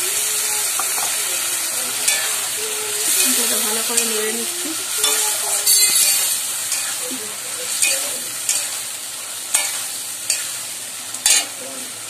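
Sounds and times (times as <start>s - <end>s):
food sizzling in hot oil: 0.0s - 12.0s
metal spatula scraping a pan: 2.0s - 7.1s, 7.7s - 8.9s, 9.5s - 10.6s.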